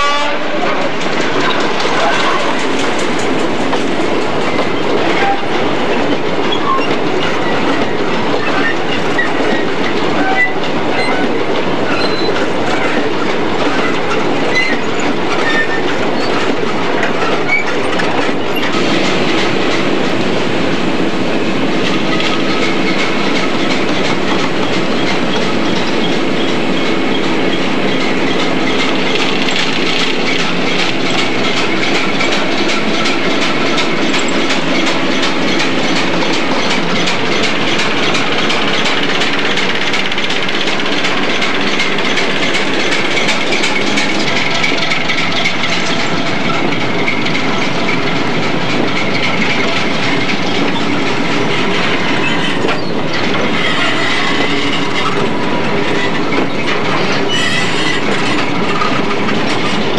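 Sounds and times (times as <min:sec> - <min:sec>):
diesel locomotive engine ticking: 0:00.0 - 0:59.9
wagon wheels clattering over rail joints: 0:00.6 - 0:59.9
high thin wheel squeal: 0:08.4 - 0:13.0, 0:52.1 - 0:55.3, 0:56.0 - 0:58.2.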